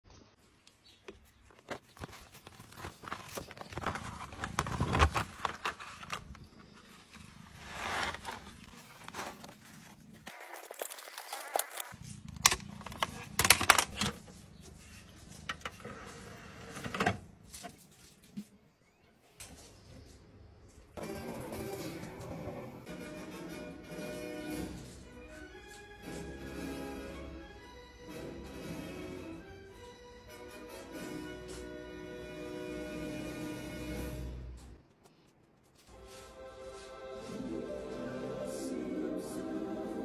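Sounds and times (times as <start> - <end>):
plastic clacks: 11.5 - 14.3.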